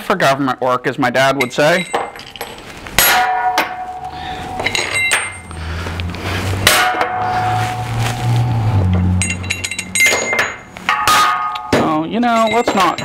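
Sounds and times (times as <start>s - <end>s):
steel parts clanking on frame: 1.4s - 5.7s, 8.8s - 13.0s
low steady hum: 1.4s - 13.0s.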